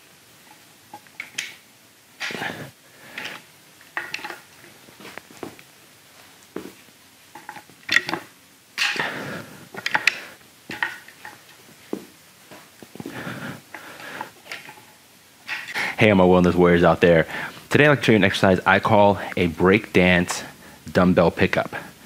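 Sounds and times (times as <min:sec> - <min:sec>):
rustling movement: 0:00.0 - 0:17.8.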